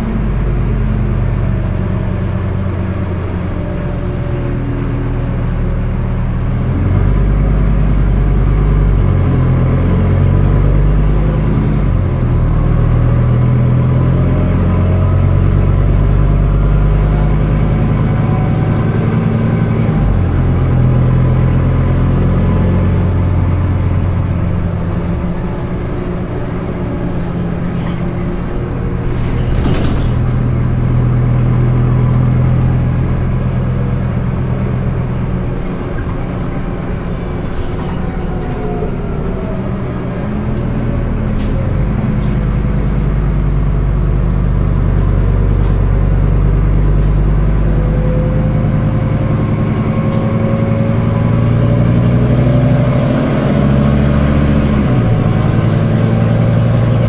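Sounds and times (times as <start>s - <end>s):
rising whine: 0.0s - 29.5s, 30.1s - 45.6s
bus diesel engine running: 0.0s - 57.0s.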